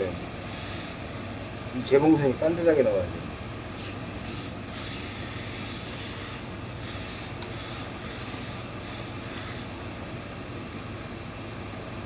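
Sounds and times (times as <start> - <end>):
steam iron hissing: 0.0 - 1.1, 3.7 - 9.8
steady low hum: 0.0 - 12.0.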